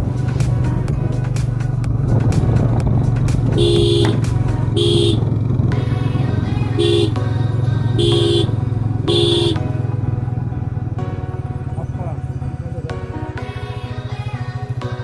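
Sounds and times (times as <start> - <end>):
motorcycle engine running: 0.0 - 15.0
two-tone horn beeps: 3.6 - 5.2, 6.8 - 7.2, 8.0 - 9.6.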